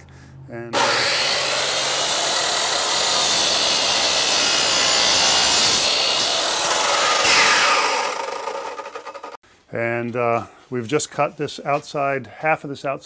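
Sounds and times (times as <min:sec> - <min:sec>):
miter saw cutting wood: 0:00.7 - 0:09.4.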